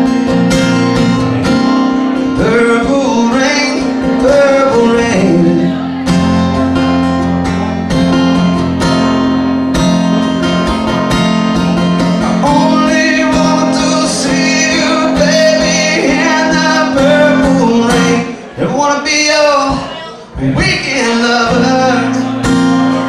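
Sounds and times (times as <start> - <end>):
strummed acoustic guitar: 0.0 - 23.0
person singing: 2.1 - 6.3, 11.8 - 23.0.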